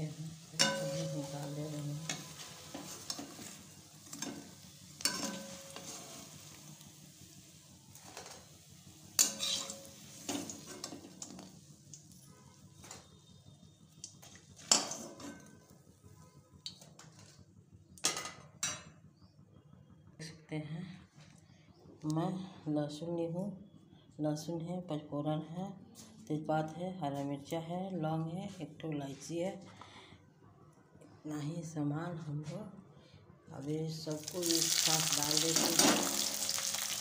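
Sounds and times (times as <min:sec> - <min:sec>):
oil sizzling: 0:00.0 - 0:12.7, 0:34.1 - 0:37.0
metal spoon knocking on pan: 0:00.6 - 0:01.3.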